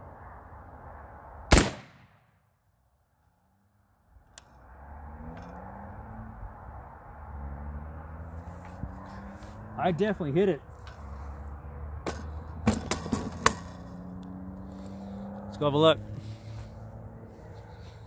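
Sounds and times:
gunshot with echo: 1.5s - 2.3s.

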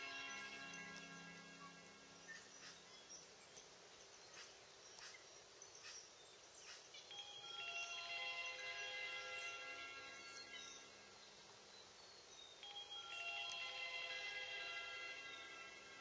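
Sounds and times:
soft chime music: 0.0s - 2.5s, 7.0s - 11.2s, 12.6s - 16.0s
faint steady hiss: 0.0s - 16.0s.

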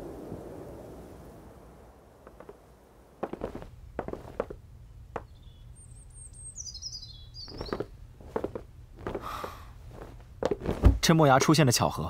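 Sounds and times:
footsteps: 2.2s - 2.6s, 3.2s - 4.6s, 7.5s - 11.5s
high bird chirps: 5.2s - 8.0s.

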